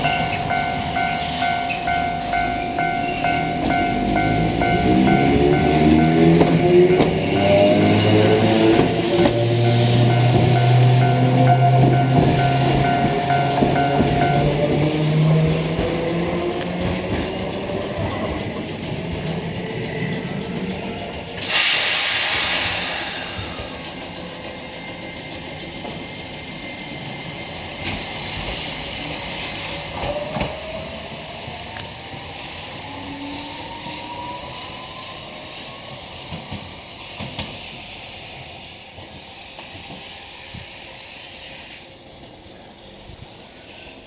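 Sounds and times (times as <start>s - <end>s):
tram rumbling: 0.0s - 44.0s
compressed air hiss: 21.4s - 23.7s.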